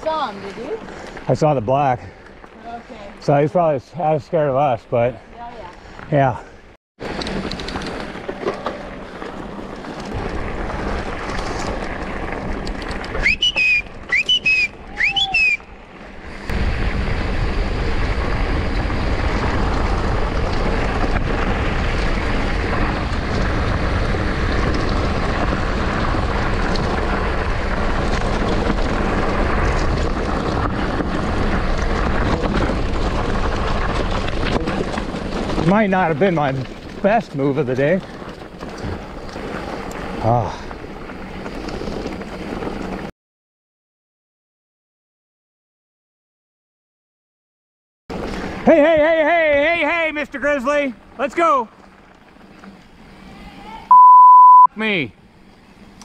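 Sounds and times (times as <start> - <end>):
bike tyres rumbling on gravel: 0.0 - 43.1, 48.1 - 53.9, 54.9 - 56.0
short high squeals: 13.2 - 15.7.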